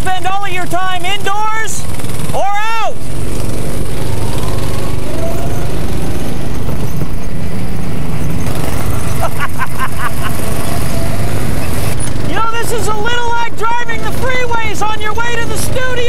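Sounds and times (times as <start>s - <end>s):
go-kart engines buzzing: 0.0s - 16.0s
person speaking: 12.2s - 16.0s.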